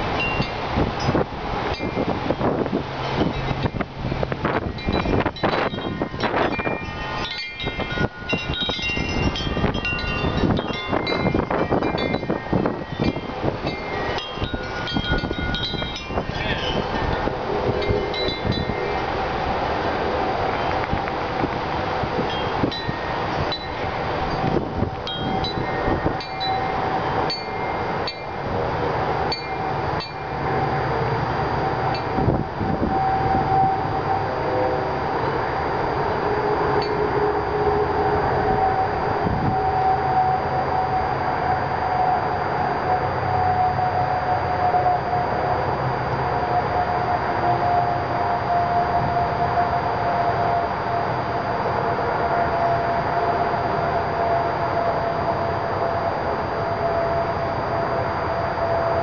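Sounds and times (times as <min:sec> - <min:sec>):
wind buffeting microphone: 0:00.0 - 0:59.0
wind chime ringing: 0:00.1 - 0:02.2, 0:03.0 - 0:19.6, 0:22.1 - 0:34.1, 0:36.8 - 0:37.1.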